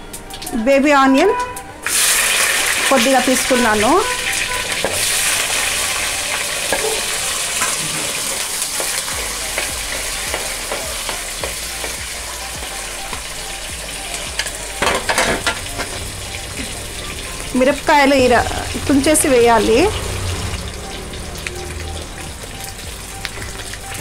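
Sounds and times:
onions sizzling in hot oil: 1.8s - 24.0s
spoon ticking against pot: 8.8s - 12.1s.

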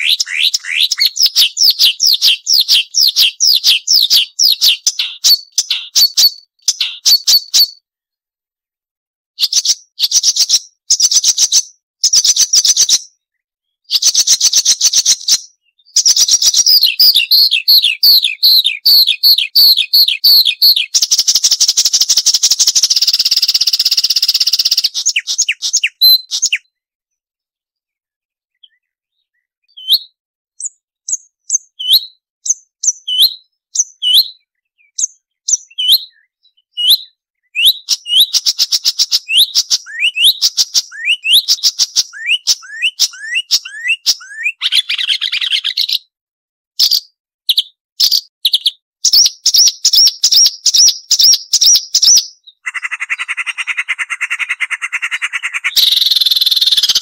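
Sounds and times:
bird raspy buzz: 0.0s - 6.1s
bird whistles and trills: 0.0s - 7.8s, 9.4s - 13.2s, 13.8s - 26.8s, 28.5s - 46.1s, 46.8s - 57.0s.

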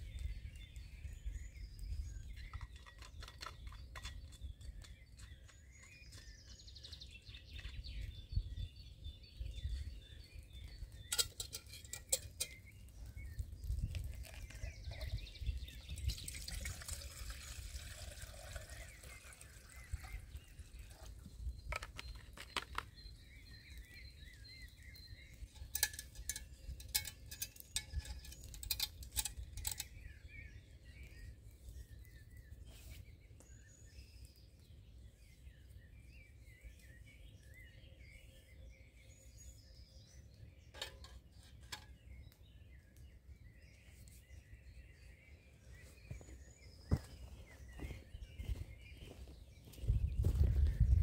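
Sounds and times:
small birds chirping: 0.0s - 51.0s
metal pot clicks and knocks: 2.4s - 6.3s, 11.1s - 12.6s, 25.5s - 29.9s, 40.7s - 41.9s.

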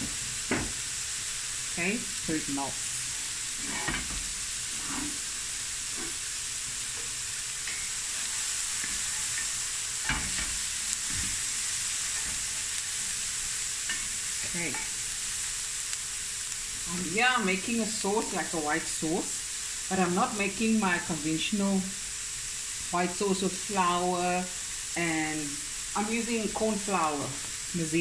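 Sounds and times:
vegetables sizzling in a pan: 0.0s - 28.0s
wooden spoon scraping a pan: 3.5s - 13.1s.

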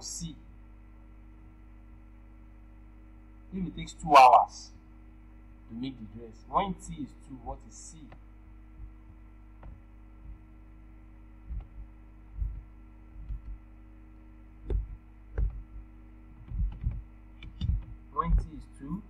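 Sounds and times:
steady electrical hum: 0.0s - 19.0s
computer keyboard keystrokes: 13.2s - 13.6s, 16.4s - 18.5s.

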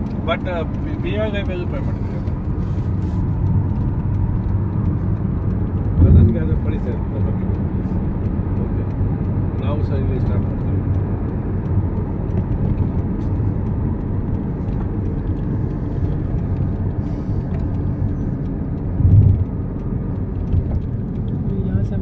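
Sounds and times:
car road and engine rumble: 0.0s - 22.0s
low thump: 6.0s - 6.4s.

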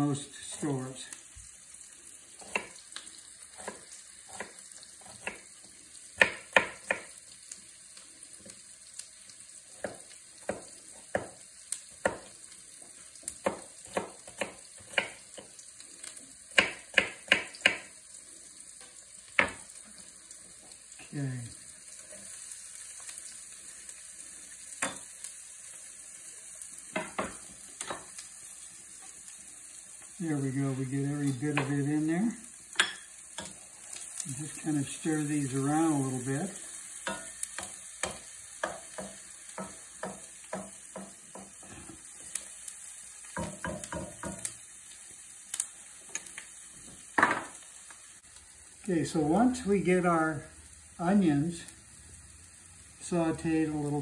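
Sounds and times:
onions sizzling in a pan: 0.0s - 54.0s
knife chopping on wooden board: 6.2s - 7.1s, 9.8s - 11.4s, 13.3s - 15.5s, 16.5s - 17.9s.

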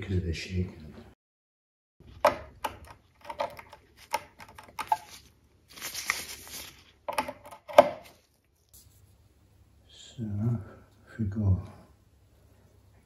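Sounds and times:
rustling: 3.3s - 9.2s.

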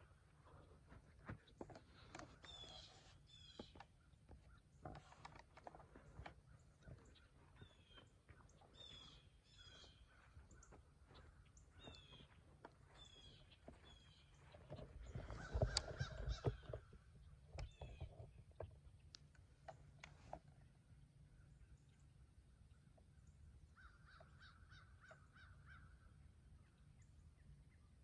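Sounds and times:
footsteps in dry grass: 0.0s - 17.0s
wild birds calling: 0.0s - 19.3s, 22.6s - 27.5s.

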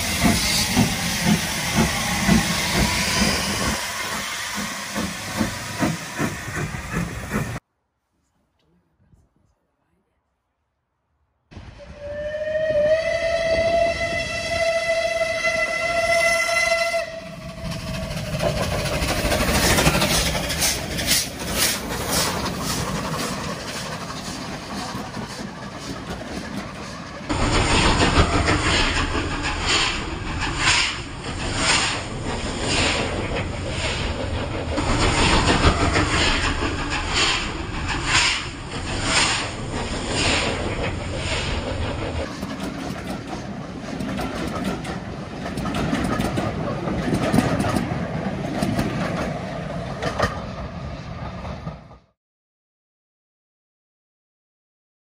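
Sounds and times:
steam hissing: 0.0s - 7.6s, 17.3s - 42.6s
train wheels clattering: 0.0s - 7.6s, 17.4s - 50.6s
steam locomotive whistle: 11.7s - 17.8s.

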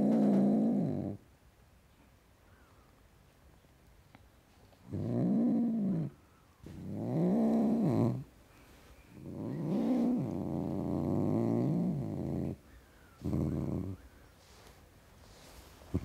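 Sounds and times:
cat growling: 0.0s - 1.2s, 4.8s - 8.3s, 9.2s - 12.6s, 13.2s - 14.0s.

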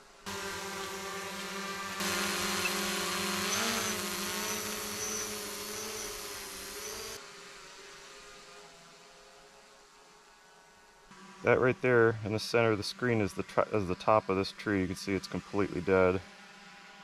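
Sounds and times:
drone propellers whining: 0.2s - 7.2s.

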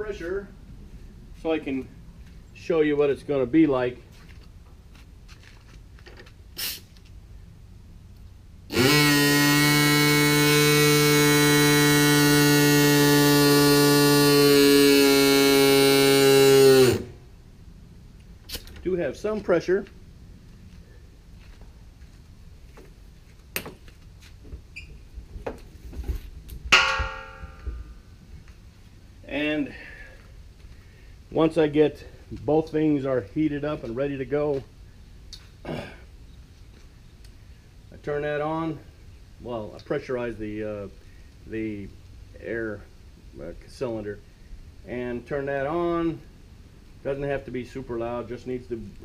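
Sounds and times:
pneumatic vibrator buzzing hum: 8.6s - 17.5s
metallic clang ringing: 26.7s - 27.9s.

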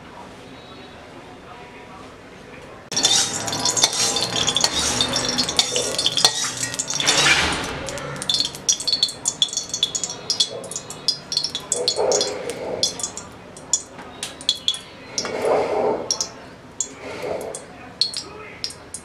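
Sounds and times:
liquid poured into sizzling pan: 2.9s - 15.4s
hot oil crackling and spitting: 2.9s - 19.0s.

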